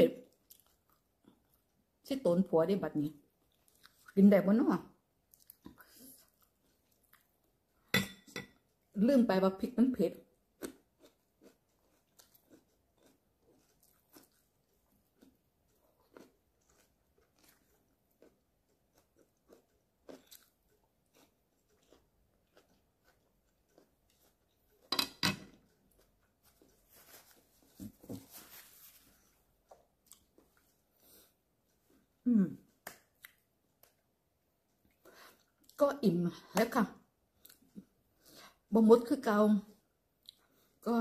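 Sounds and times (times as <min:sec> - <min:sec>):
person chewing food: 0:00.2 - 0:01.9, 0:03.4 - 0:04.2, 0:05.2 - 0:07.9, 0:10.4 - 0:27.5, 0:29.2 - 0:35.8, 0:37.2 - 0:38.4, 0:40.0 - 0:40.8.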